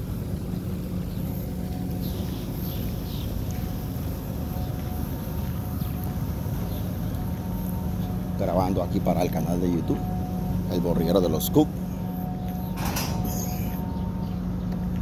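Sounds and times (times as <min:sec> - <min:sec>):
low machinery hum: 0:00.0 - 0:15.0.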